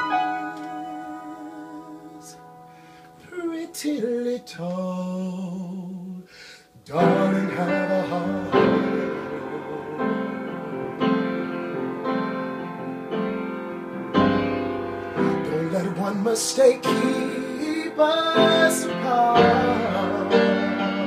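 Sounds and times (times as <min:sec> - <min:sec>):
man singing: 0:00.0 - 0:02.6, 0:03.2 - 0:11.5, 0:15.2 - 0:21.0
upright piano chords: 0:00.0 - 0:21.0.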